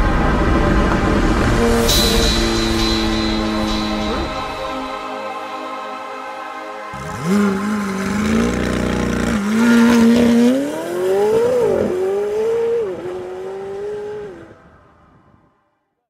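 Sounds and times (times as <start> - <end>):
sports car accelerating hard: 7.0 - 14.8.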